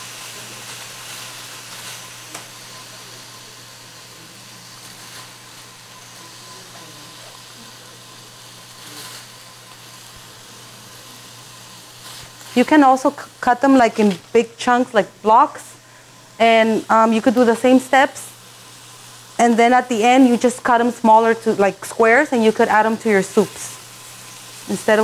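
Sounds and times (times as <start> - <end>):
tofu sizzling in oil: 0.0 - 25.0.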